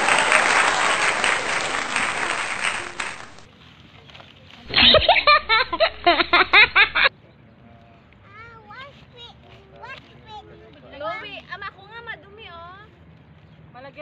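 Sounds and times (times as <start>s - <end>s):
applause: 0.0s - 3.5s
burst of laughter: 4.7s - 7.1s.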